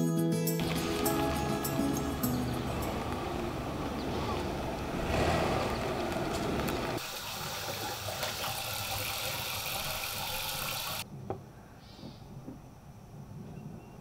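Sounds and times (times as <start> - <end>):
faucet running into sink: 7.0 - 11.0.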